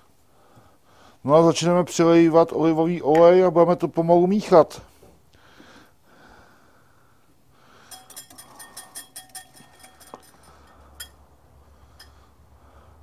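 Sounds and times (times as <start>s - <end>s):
metal whisk clinking on glass bowl: 7.9s - 11.2s.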